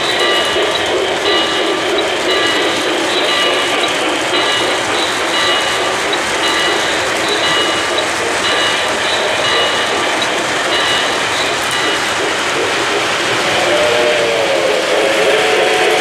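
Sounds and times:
model train rumbling on track: 0.0s - 16.0s.

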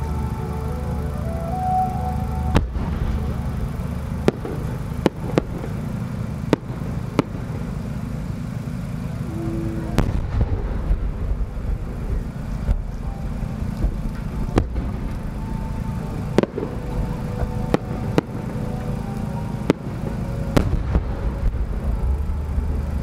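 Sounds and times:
steady low rumble: 0.0s - 23.0s
firework sharp cracks: 2.2s - 23.0s
firework boom: 2.5s - 5.9s, 9.9s - 13.0s.

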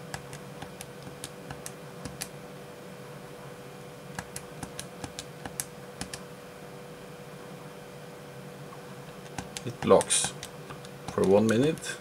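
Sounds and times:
keypad buttons clicking: 9.2s - 11.8s.

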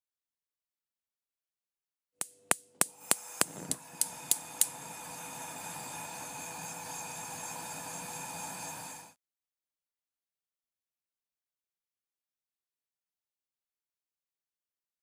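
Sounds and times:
shimmering hum with held tones: 2.8s - 9.2s.

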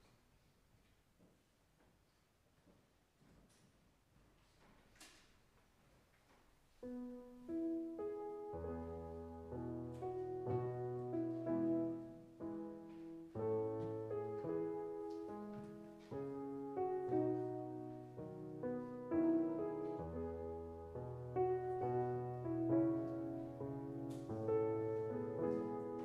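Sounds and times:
slow gentle piano piece: 6.7s - 26.0s.

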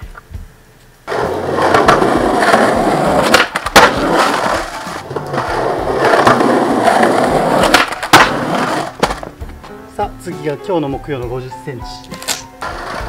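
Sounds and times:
skateboard wheels rolling on concrete: 0.0s - 10.9s, 11.9s - 13.0s
skateboard clacks: 1.1s - 9.6s
skateboard tail pop and landing: 1.1s - 9.6s.

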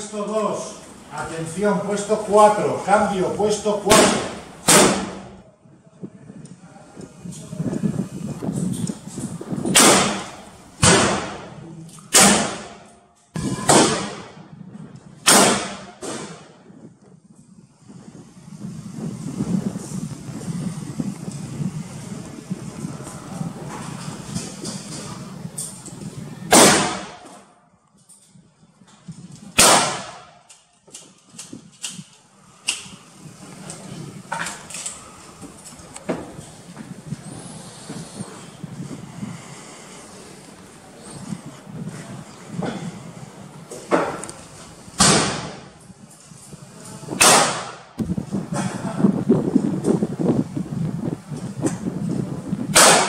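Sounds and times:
muzzle-loader gunshots: 3.9s - 5.4s, 9.7s - 11.5s, 12.1s - 12.9s, 15.2s - 16.5s, 29.6s - 30.4s, 47.2s - 47.8s, 52.8s - 53.0s.

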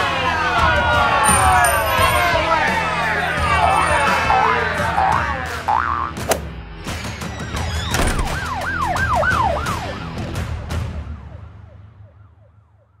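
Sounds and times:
siren wailing: 8.2s - 13.0s.

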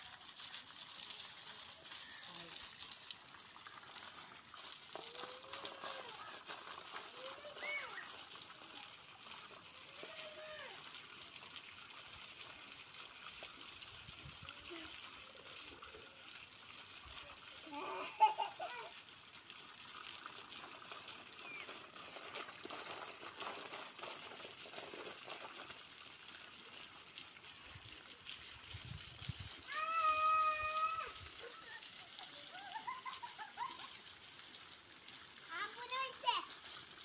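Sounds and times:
waterfall splashing on stones: 0.0s - 37.0s
voice-like cry: 29.7s - 31.2s.

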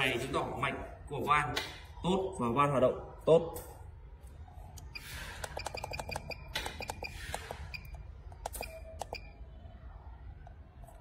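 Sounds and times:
device buttons clicking: 4.8s - 9.4s.

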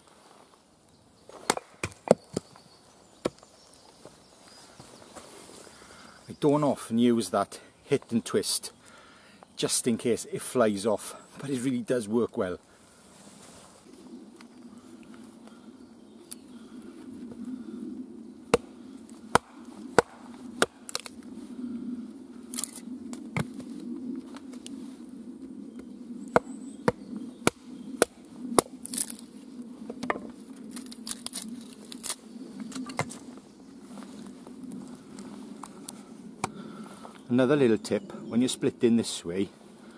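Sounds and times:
wood cracking: 1.3s - 2.6s, 18.5s - 21.3s, 22.4s - 24.7s, 26.3s - 29.3s, 29.9s - 33.3s
axe chopping wood: 1.4s - 2.5s, 19.3s - 21.1s, 26.3s - 29.1s.

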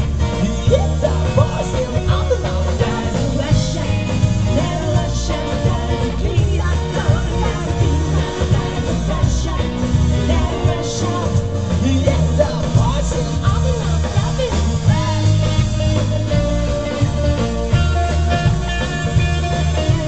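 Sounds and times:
lead singer singing: 0.0s - 20.0s
live rock band playing: 0.0s - 20.0s.

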